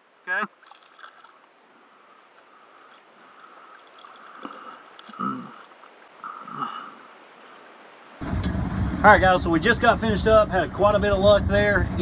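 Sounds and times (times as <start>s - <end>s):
water lapping and gurgling: 0.0s - 8.2s.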